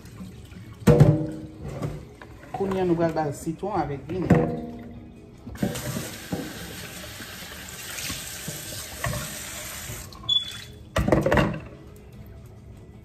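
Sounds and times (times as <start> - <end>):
water splashing into sink: 4.1 - 11.6
faucet running into plastic bowl: 5.6 - 10.8.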